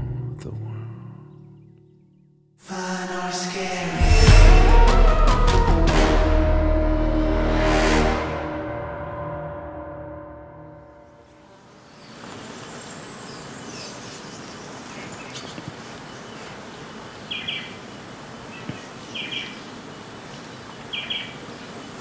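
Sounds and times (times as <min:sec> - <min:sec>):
steady outdoor hiss: 0:11.0 - 0:22.0
faint bird calls: 0:11.7 - 0:22.0
bright bird chirping call: 0:17.2 - 0:17.8, 0:18.6 - 0:22.0.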